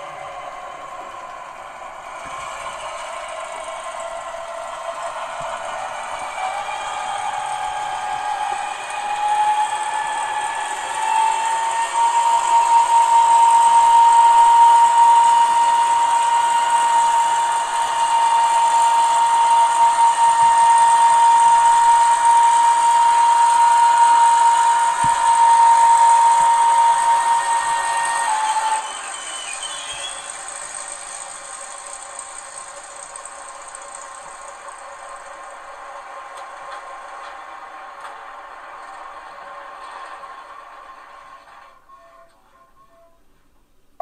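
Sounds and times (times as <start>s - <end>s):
steady high whine: 0.0s - 42.5s
model locomotive diesel engine sound: 0.0s - 44.0s.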